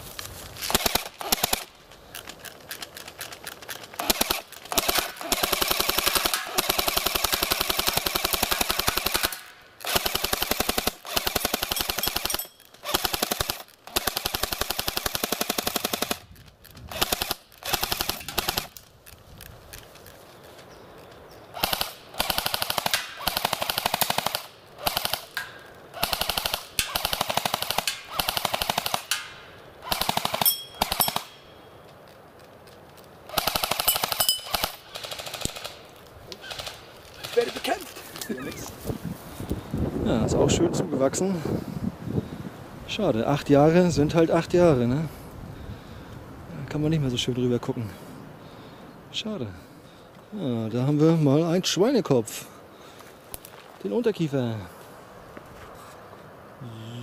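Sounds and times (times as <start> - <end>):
automatic gunfire bursts: 0.7 - 1.8, 4.0 - 16.3, 16.9 - 18.8, 21.6 - 31.4, 33.3 - 35.8, 36.4 - 37.8.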